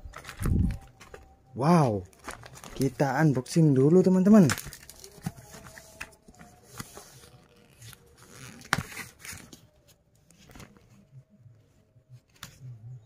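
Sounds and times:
plastic bag crinkling: 0.0 - 1.3, 2.1 - 3.1, 4.0 - 5.8.

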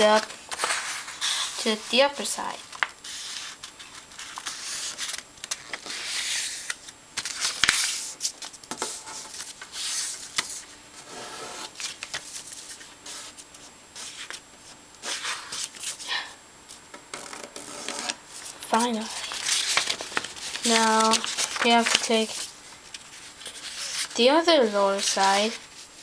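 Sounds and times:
paper rustling and rubbing: 0.0 - 16.0, 17.2 - 26.0
sharp paper clicks: 18.8 - 24.1.

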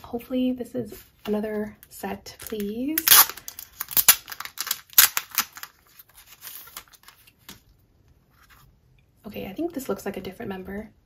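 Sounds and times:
wrapper tearing and crinkling: 2.4 - 7.3
paper rustling: 2.4 - 7.6, 8.3 - 8.7.

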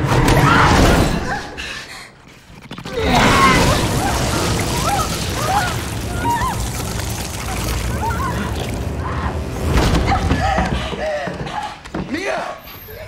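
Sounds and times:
woman shrieking: 3.0 - 7.0
liquid gushing and splattering: 3.0 - 9.0.

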